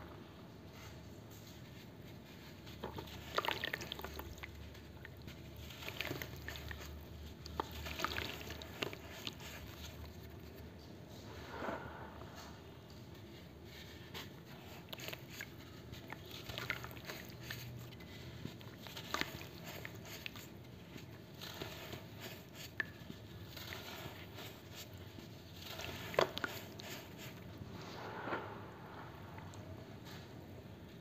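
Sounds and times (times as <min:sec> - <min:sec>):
water trickling splashes: 0:03.0 - 0:10.1.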